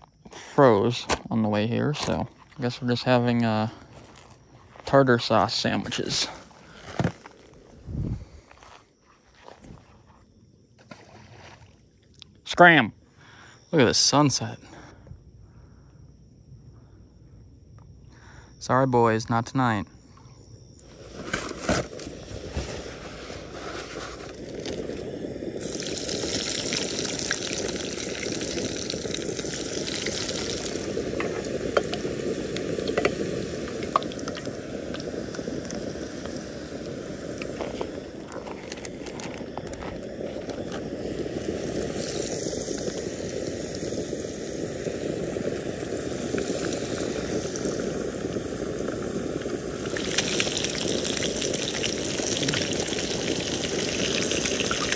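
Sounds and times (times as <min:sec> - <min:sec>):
oil popping: 0:20.9 - 0:54.9
fish frying in hot oil: 0:24.1 - 0:54.9.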